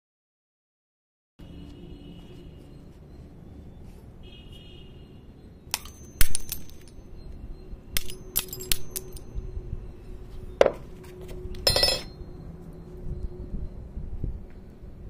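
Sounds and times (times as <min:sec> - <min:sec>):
glass cracking and clinking: 0:05.8 - 0:07.0, 0:08.0 - 0:09.3
breaking glass rattle: 0:08.0 - 0:09.2.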